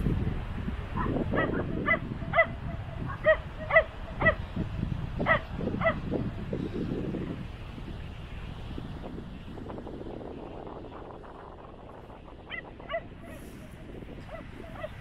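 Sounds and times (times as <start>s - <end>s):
low rumble of wind or surf: 0.0s - 15.0s
dog barking: 1.0s - 4.4s, 5.2s - 6.0s, 12.5s - 13.4s, 14.2s - 15.0s.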